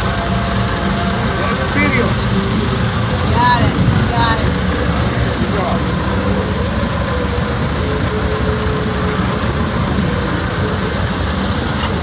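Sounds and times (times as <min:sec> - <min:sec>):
boat engines rumbling: 0:00.0 - 0:12.0.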